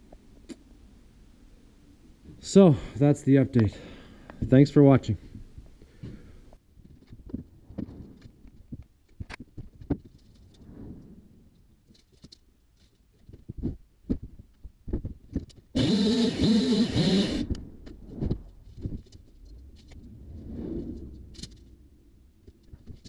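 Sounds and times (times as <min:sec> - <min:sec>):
chainsaw burst: 0:15.8 - 0:17.5.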